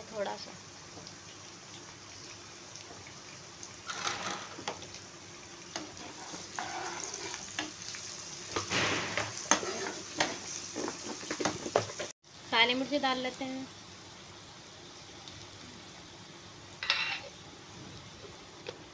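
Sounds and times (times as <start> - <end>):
vegetables sizzling in oil: 0.0 - 18.9
spatula scraping pan: 3.8 - 4.8, 5.7 - 7.8, 8.6 - 12.1.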